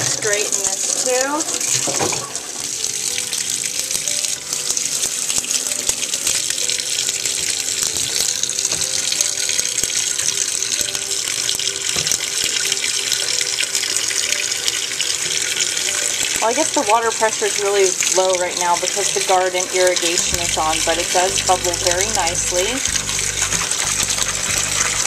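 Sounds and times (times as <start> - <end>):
tap water splashing into sink: 0.0 - 2.8, 7.3 - 9.4, 11.4 - 12.3.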